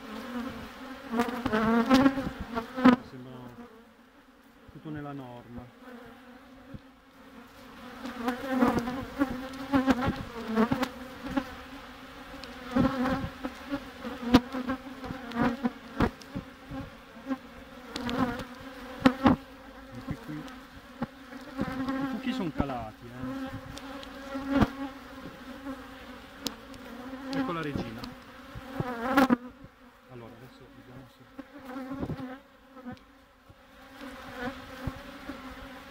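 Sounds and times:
bee colony humming: 0.0s - 35.9s
bees whining past: 5.8s - 30.0s.

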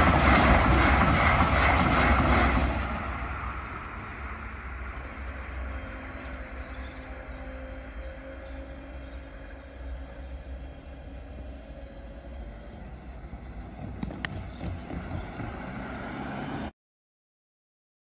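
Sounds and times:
tyres clacking on rails: 0.0s - 3.9s, 13.1s - 16.1s
barrier motor humming: 0.0s - 16.6s
birds chirping: 4.8s - 16.6s
car driving past: 10.4s - 16.7s.

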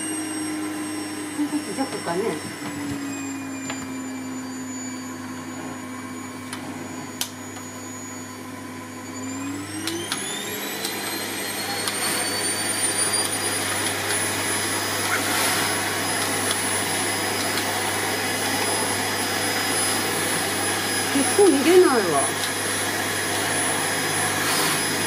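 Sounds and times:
vacuum cleaner motor whine: 0.0s - 25.0s.

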